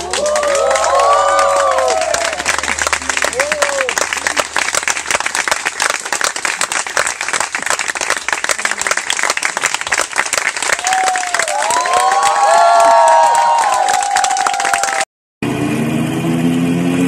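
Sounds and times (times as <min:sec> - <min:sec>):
whooping cheers: 0:00.0 - 0:04.1, 0:10.7 - 0:15.1
crowd applauding: 0:00.0 - 0:15.1.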